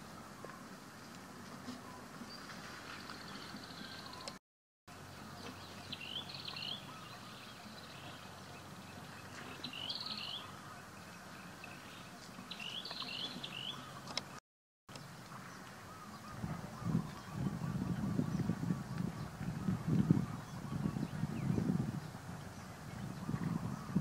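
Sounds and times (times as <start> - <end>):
small bird chirping: 5.3 - 18.5.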